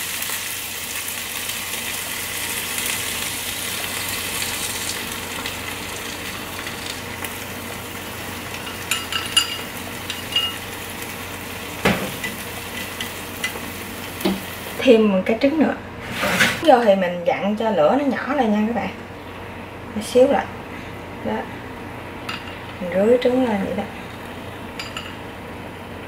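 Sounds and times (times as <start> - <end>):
egg sizzling in a pan: 0.0 - 14.9, 23.5 - 25.6.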